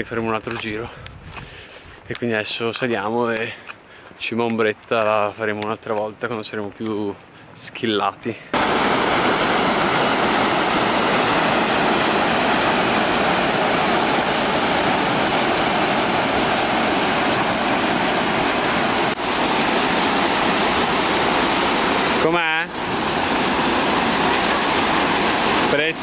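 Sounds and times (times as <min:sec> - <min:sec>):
waterfall rushing over boulders: 0:08.6 - 0:26.0.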